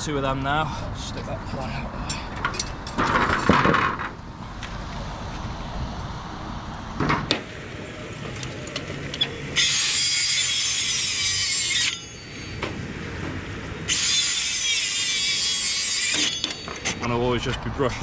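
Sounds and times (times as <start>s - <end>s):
circular saw cutting timber: 9.2s - 12.6s, 13.8s - 17.0s.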